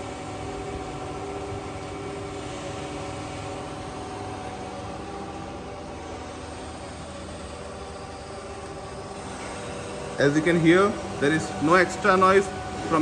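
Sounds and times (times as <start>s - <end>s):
surface grinder running: 6.0s - 13.0s.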